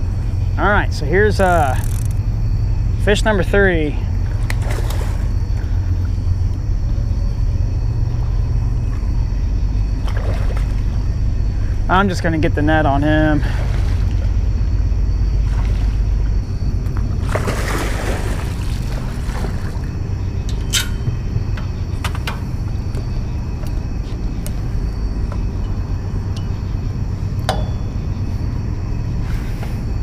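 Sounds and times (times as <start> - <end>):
low rumble: 0.0 - 30.0
fish splashing at surface: 17.2 - 19.9.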